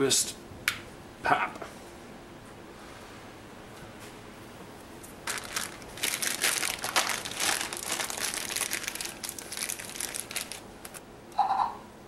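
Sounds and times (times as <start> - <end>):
plastic bag crinkling: 5.2 - 11.0.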